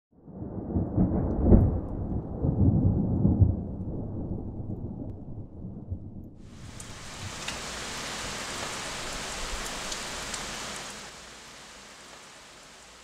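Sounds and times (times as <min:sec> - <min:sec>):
rolling thunder: 0:00.2 - 0:09.6.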